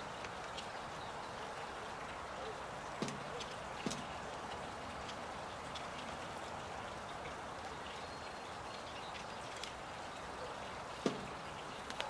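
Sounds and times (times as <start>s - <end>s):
woodpecker tapping: 8.7s - 12.0s.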